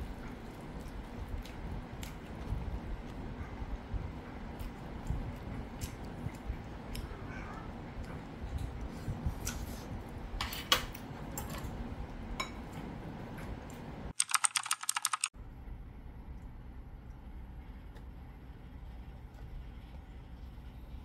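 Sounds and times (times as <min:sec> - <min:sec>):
rapid typing-like clicks: 0:14.2 - 0:15.3.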